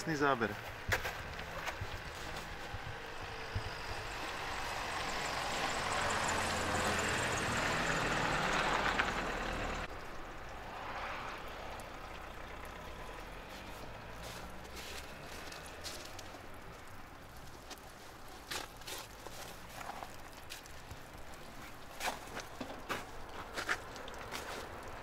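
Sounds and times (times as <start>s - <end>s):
motor vehicle passing: 0.6s - 17.8s
low engine hum: 0.6s - 18.0s.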